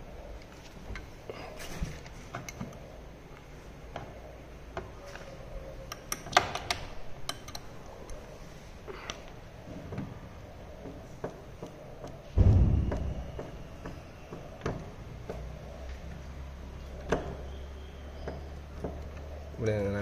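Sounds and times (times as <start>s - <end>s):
screwdriver clicks and metal clinks: 5.9s - 7.7s.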